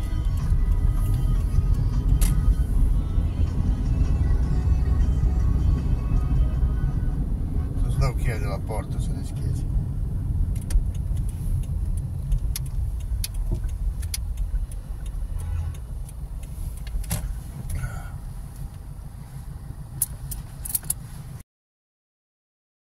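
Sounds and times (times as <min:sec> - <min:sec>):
car engine and road rumble: 0:00.0 - 0:21.4
sharp clicks and knocks: 0:10.5 - 0:17.8, 0:20.0 - 0:21.0.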